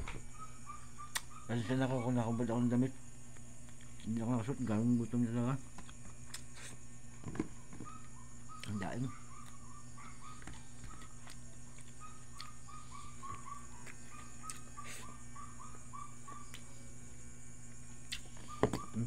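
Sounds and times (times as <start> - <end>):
steady low hum: 0.0 - 19.0
animal chirping: 0.3 - 2.6, 7.8 - 11.2, 12.0 - 16.6, 18.4 - 19.0.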